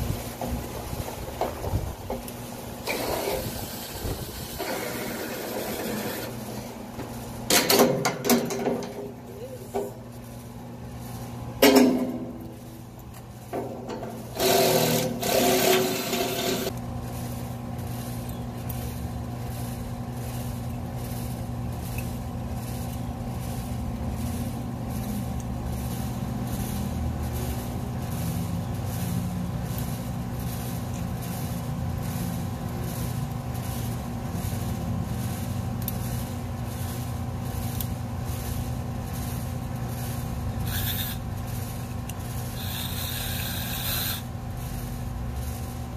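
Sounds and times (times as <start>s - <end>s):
steady mechanical hum: 0.0s - 45.9s
metal shutter rattling and scraping: 0.5s - 9.3s, 13.4s - 16.7s.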